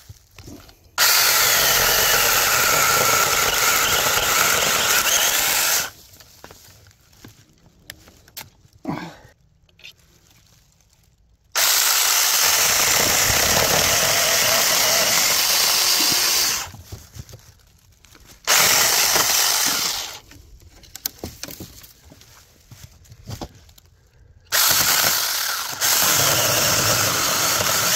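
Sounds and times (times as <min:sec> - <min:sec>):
mini chainsaw cutting branch: 0:01.0 - 0:05.9, 0:11.6 - 0:16.7, 0:18.5 - 0:20.2, 0:24.5 - 0:27.9.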